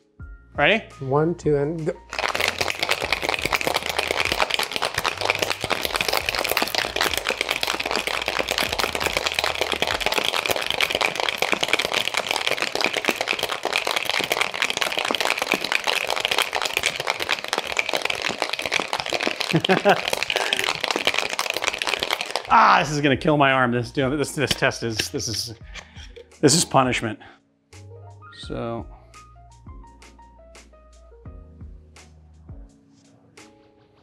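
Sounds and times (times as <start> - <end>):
ice rattling in cocktail shaker: 2.0 - 23.1.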